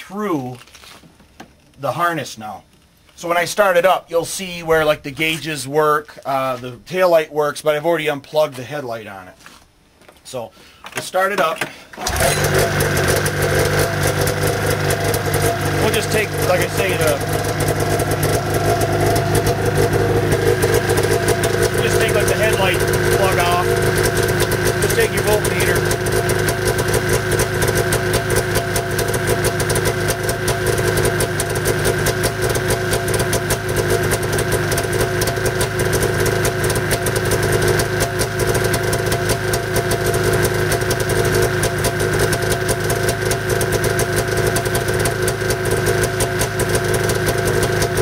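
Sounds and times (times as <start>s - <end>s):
snowmobile engine idling: 12.1s - 48.0s.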